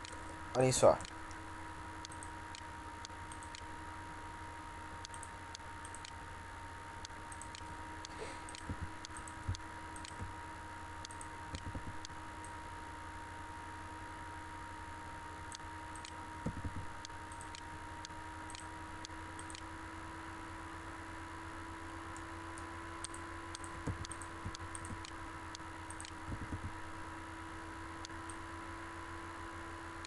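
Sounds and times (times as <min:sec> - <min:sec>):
electrical hum and hiss: 0:00.0 - 0:30.0
computer mouse clicks: 0:02.0 - 0:03.7, 0:05.0 - 0:06.2, 0:07.3 - 0:10.3, 0:11.0 - 0:12.2, 0:15.5 - 0:18.7, 0:19.4 - 0:19.7, 0:22.2 - 0:25.2, 0:25.9 - 0:26.7.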